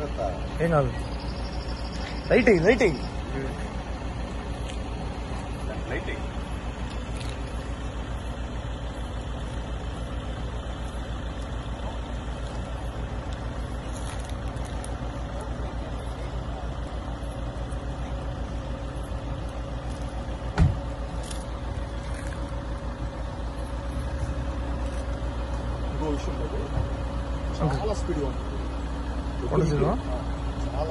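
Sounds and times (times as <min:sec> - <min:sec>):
vehicle engine idling: 0:00.0 - 0:30.9
short thump: 0:20.5 - 0:20.9.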